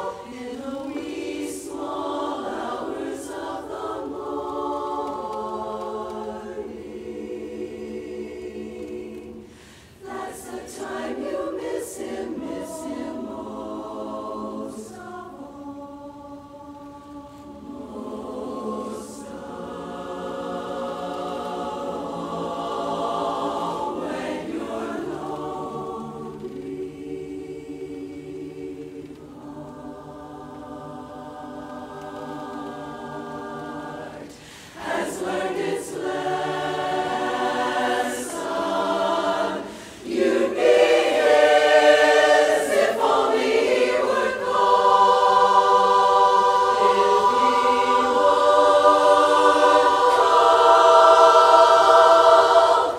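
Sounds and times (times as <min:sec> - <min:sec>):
women's chorus singing a cappella: 0:00.0 - 0:52.9.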